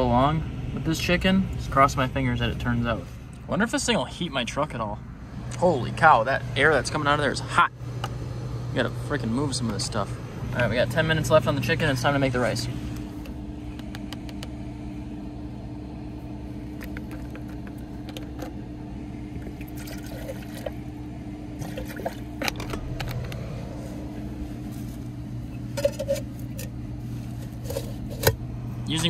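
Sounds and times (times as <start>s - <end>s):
steady low hum: 0.0s - 29.0s
water pouring into metal pot: 19.6s - 20.7s.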